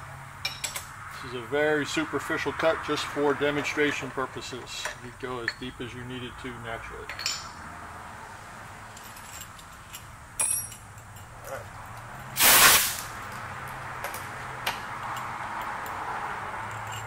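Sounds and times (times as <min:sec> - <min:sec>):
metallic clink: 0:07.0 - 0:07.6, 0:08.9 - 0:12.4, 0:16.7 - 0:17.0
loud hiss of air: 0:12.3 - 0:13.2.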